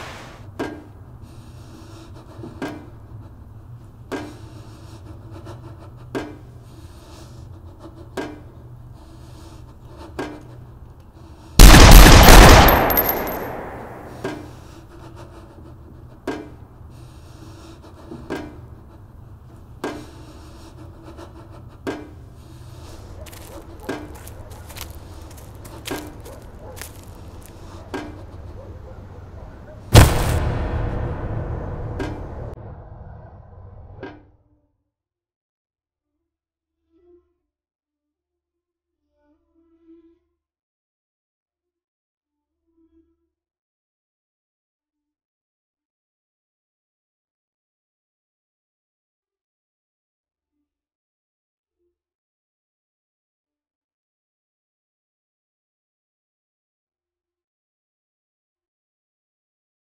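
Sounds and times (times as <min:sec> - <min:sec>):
steady low hum: 0:00.8 - 0:34.0
hand tool digging into earth: 0:23.2 - 0:27.7
dramatic film score boom: 0:29.9 - 0:34.3.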